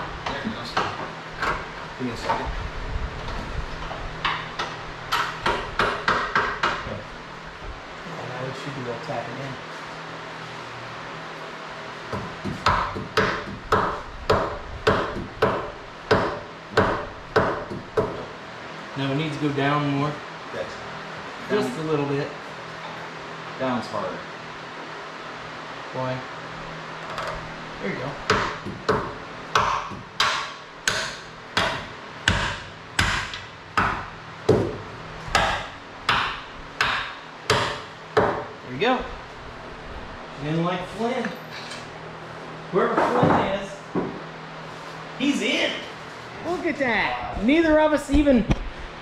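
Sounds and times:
hammer striking engine: 28.2 - 38.6.

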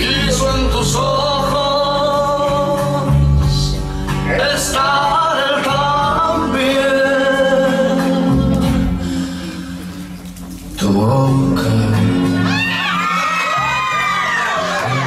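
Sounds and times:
man singing long notes: 0.0 - 9.6, 10.8 - 12.8
instrumental backing music: 0.0 - 15.0.

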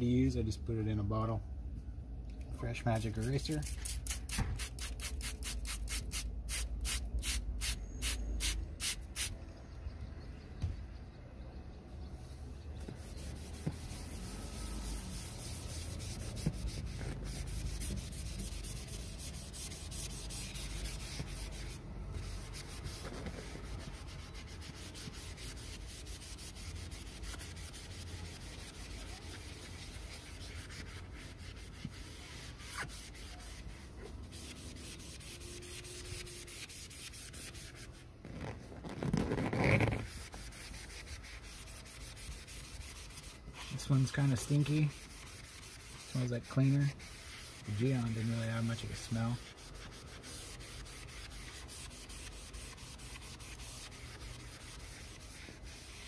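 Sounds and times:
sponge scrubbing vinyl cushion: 12.9 - 56.0.

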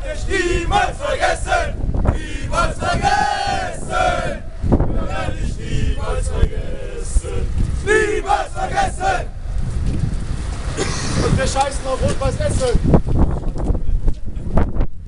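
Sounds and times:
crowd chanting and singing: 0.0 - 9.4
low rumble: 0.0 - 13.9.

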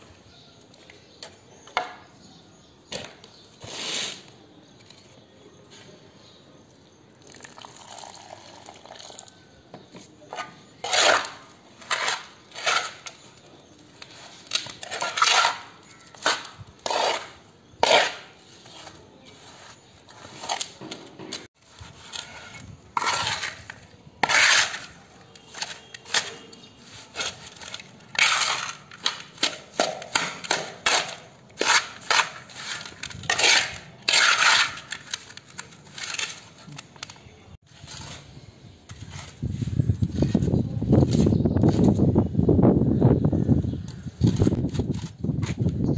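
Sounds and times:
trowel scraping metal basin: 2.9 - 4.4, 10.2 - 36.7, 37.7 - 42.0.

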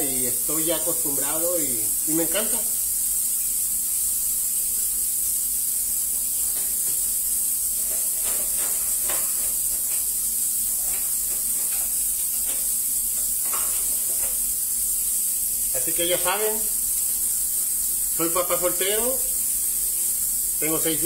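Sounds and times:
steady high-pitched hiss: 0.0 - 21.0
dishes clinking and knocking: 7.8 - 10.1, 10.8 - 14.4.

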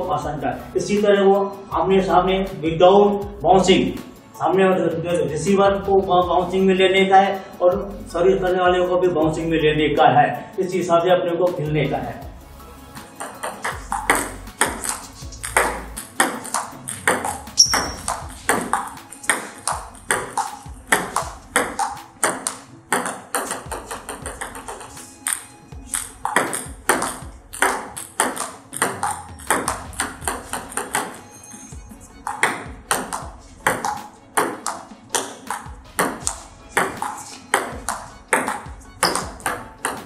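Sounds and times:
table tennis ball clicking: 13.2 - 31.2, 32.2 - 40.0.

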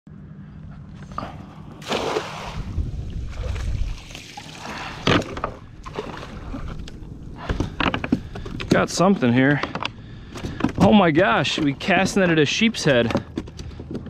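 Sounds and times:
water splashing off net: 1.8 - 6.4.

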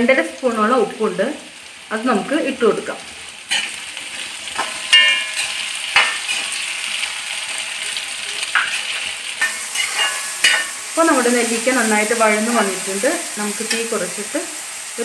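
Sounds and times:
fruit sizzling in oil: 0.0 - 15.0
spoon scraping and clinking pan: 4.6 - 6.6, 8.5 - 11.0.

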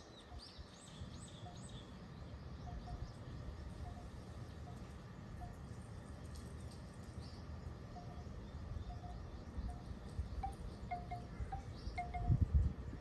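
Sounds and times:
wind buffeting microphone: 8.7 - 13.0.

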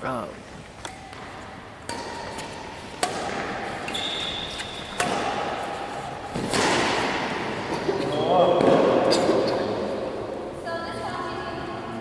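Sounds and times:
badminton racket hitting shuttlecock: 0.7 - 7.9
high-pitched shoe squeak: 3.8 - 5.0.

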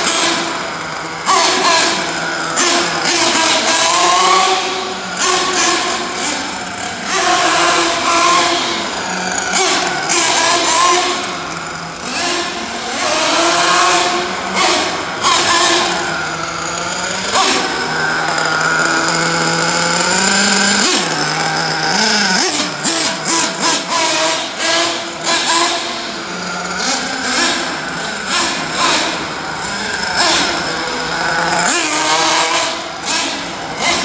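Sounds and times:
rc car engine revving: 0.0 - 34.0.

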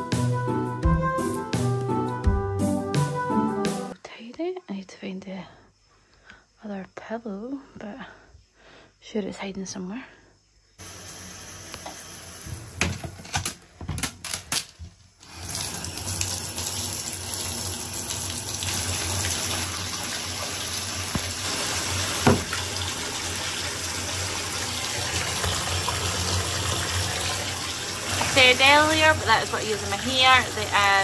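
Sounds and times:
bath tap running water: 10.8 - 13.5, 15.2 - 31.0.

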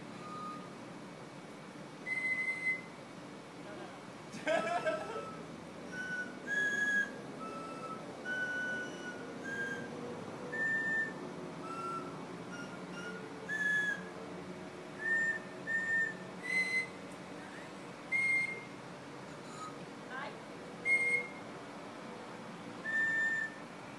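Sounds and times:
people whistling a tune: 0.2 - 0.7, 2.1 - 2.9, 5.2 - 14.1, 15.0 - 18.7, 19.4 - 19.8, 20.8 - 21.4, 22.8 - 23.6.

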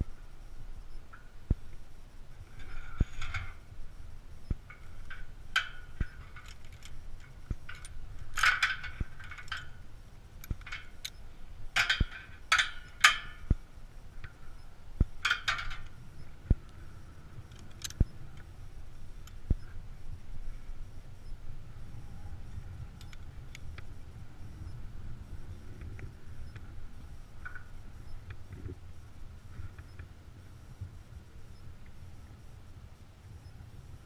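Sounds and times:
metal climbing gear clinking: 4.7 - 9.8, 10.4 - 13.5, 15.2 - 16.0, 17.5 - 18.0.

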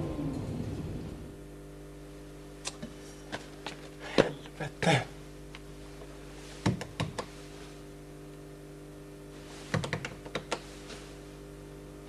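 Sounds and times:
steady electrical hum: 0.0 - 12.0
wall panel clicks: 9.7 - 10.7.

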